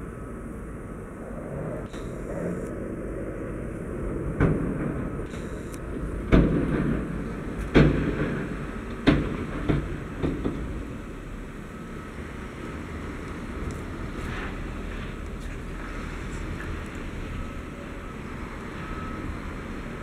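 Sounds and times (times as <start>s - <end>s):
truck diesel engine rumbling: 0.0s - 20.0s
heavy bangs: 4.3s - 10.9s.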